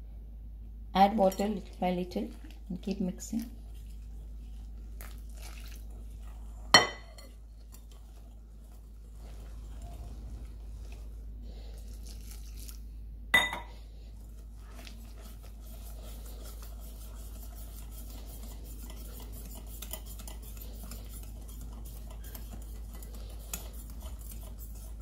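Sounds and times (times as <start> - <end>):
whisk beating batter in glass bowl: 1.2 - 12.7, 14.0 - 25.0.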